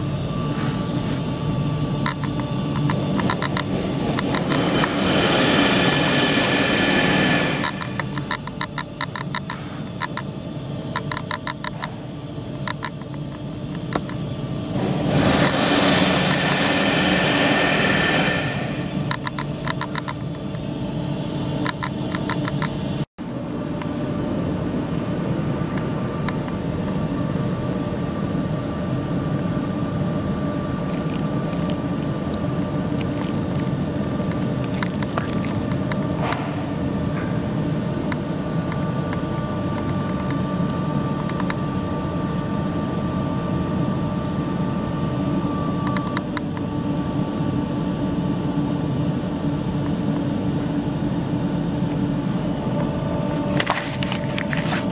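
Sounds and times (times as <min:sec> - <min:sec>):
machinery rumbling: 0:00.0 - 0:26.2
faint steady whine: 0:00.0 - 0:54.9.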